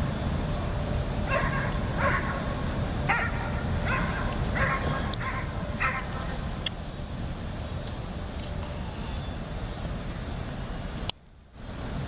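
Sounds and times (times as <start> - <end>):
dog barking: 1.3 - 2.5, 3.1 - 6.1.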